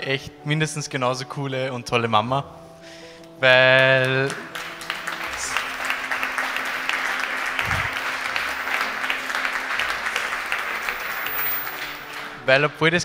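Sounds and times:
audience clapping: 0:03.8 - 0:12.7.

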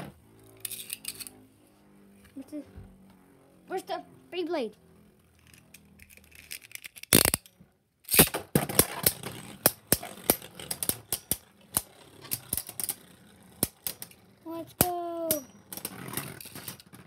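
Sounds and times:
spinning tops clacking in plastic stadium: 0:00.4 - 0:01.4, 0:05.4 - 0:17.0.

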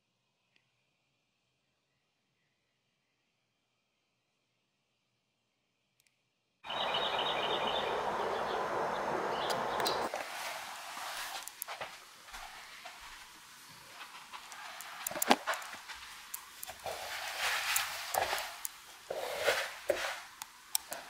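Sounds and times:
clothes rustling: 0:10.0 - 0:21.0
footsteps on hard floor: 0:10.1 - 0:20.2.

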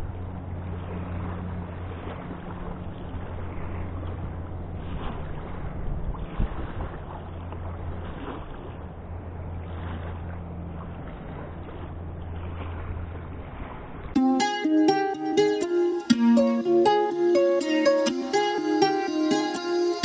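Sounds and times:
wind rumbling on microphone: 0:00.0 - 0:14.2
choppy river: 0:00.0 - 0:20.0.

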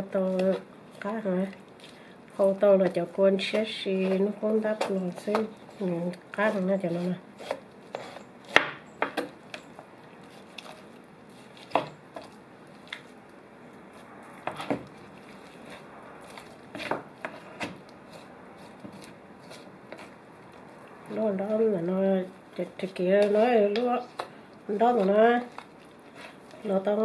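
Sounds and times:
knife chopping on cutting board: 0:11.6 - 0:12.3, 0:16.7 - 0:17.8.

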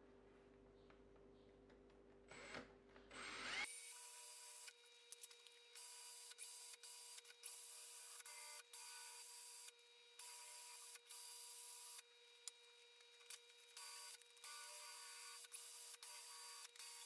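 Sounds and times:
cordless drill whirring: 0:02.3 - 0:09.7.

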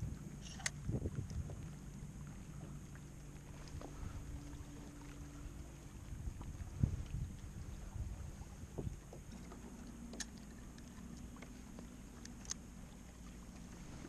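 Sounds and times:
low steady rumble: 0:00.0 - 0:14.0
water lapping against hull: 0:00.0 - 0:14.0
fishing tackle clicks: 0:00.4 - 0:00.8, 0:10.1 - 0:12.6.

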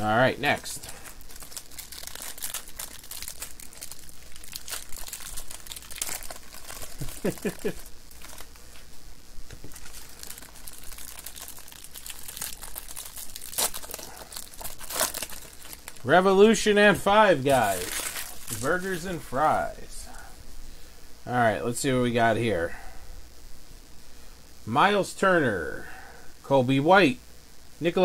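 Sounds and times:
card wrapper crinkling and tearing: 0:00.4 - 0:08.9, 0:09.5 - 0:16.2, 0:17.4 - 0:19.7.

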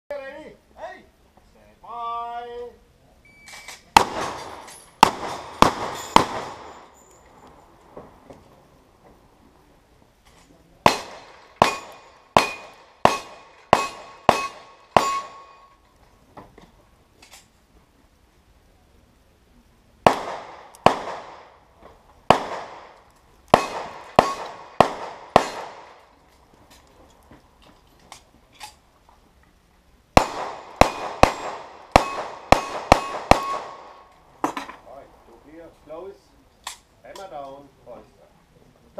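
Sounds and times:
gunshots: 0:03.9 - 0:06.9, 0:10.8 - 0:15.6, 0:20.0 - 0:21.6, 0:22.3 - 0:26.0, 0:30.2 - 0:34.1
steel targets ringing: 0:11.6 - 0:15.8.

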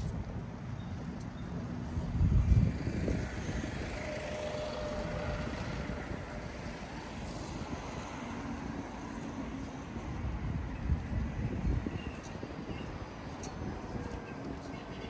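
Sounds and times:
road traffic and engine hum: 0:00.0 - 0:15.0
vehicle rumbling past: 0:02.0 - 0:08.8.

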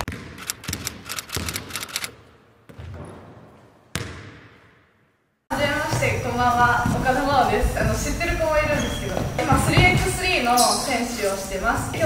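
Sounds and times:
sharp clicks: 0:00.0 - 0:02.1.

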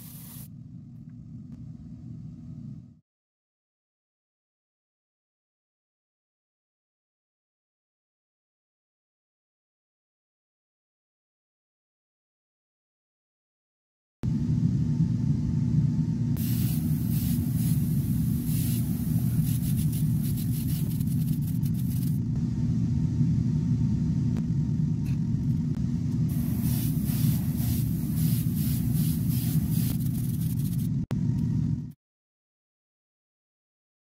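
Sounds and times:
airbrush spraying bursts: 0:00.0 - 0:00.5, 0:16.4 - 0:22.2, 0:26.3 - 0:30.9
steady low hum: 0:00.0 - 0:03.0, 0:14.2 - 0:32.0.

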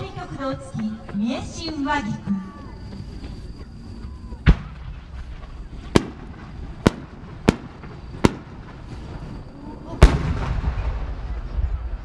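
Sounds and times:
low background rumble: 0:00.0 - 0:12.0
firework bangs: 0:04.2 - 0:12.0.

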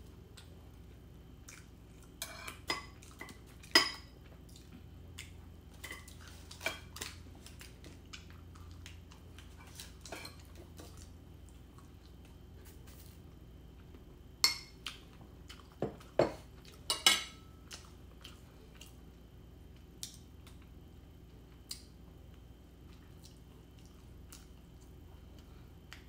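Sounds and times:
cutlery scraping ceramic bowl: 0:02.2 - 0:02.6.

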